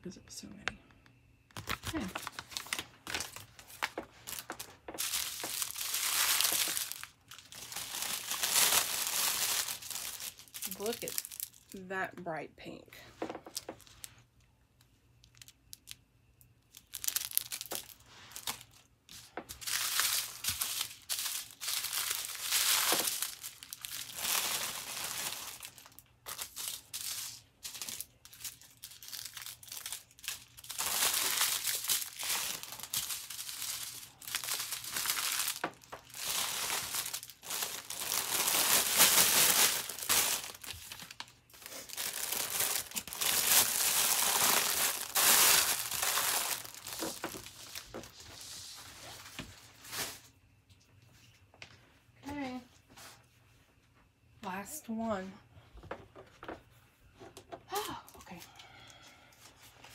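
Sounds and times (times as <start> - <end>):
plastic packets crinkling: 1.5 - 12.0, 13.2 - 14.3, 15.2 - 16.0, 16.6 - 48.3.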